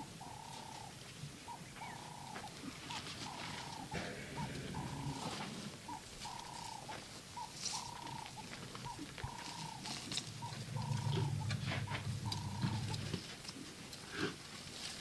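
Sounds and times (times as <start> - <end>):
low rumble: 4.0 - 5.7, 10.0 - 13.3.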